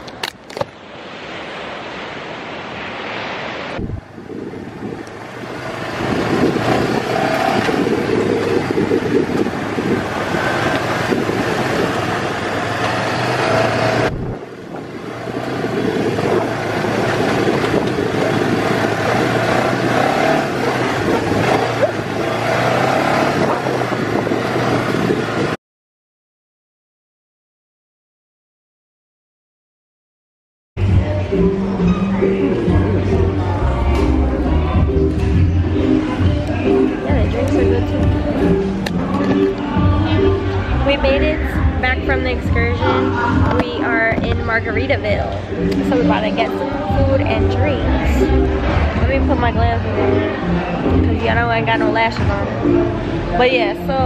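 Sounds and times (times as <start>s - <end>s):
wind rushing over microphone: 0.0s - 25.6s
dune buggy engine running: 4.4s - 25.6s.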